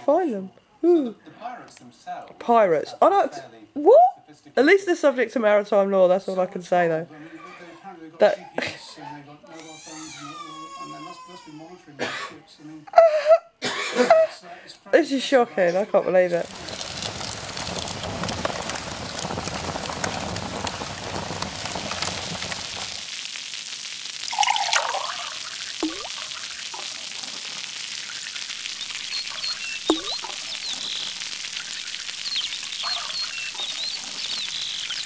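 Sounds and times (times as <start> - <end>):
water pouring hiss: 16.3 - 35.0
water drips and plops: 16.4 - 35.0.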